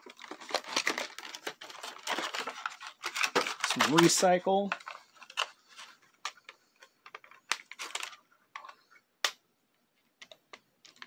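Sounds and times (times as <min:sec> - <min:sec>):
plastic bag crinkles: 0:00.0 - 0:06.0
plastic clicks: 0:10.1 - 0:11.0.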